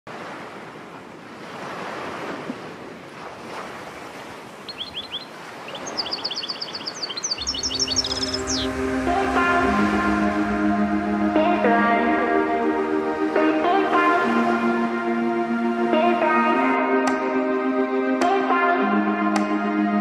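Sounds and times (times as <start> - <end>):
surf washing on shore: 0.1 - 15.0
bird chirping and trilling: 4.6 - 8.9
music with sustained low notes: 7.4 - 20.0.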